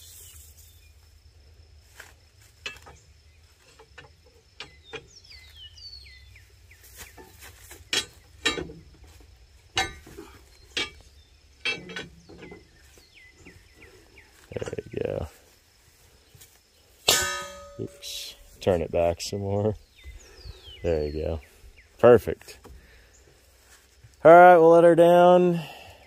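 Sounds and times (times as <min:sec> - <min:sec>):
bird chirping: 0:02.6 - 0:24.2
metal pry bar clinking: 0:07.9 - 0:08.8, 0:09.7 - 0:12.6, 0:17.1 - 0:18.4.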